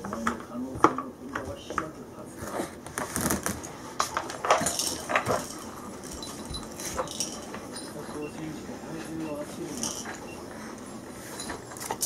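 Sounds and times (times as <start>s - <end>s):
wooden blocks clattering: 4.0s - 8.2s.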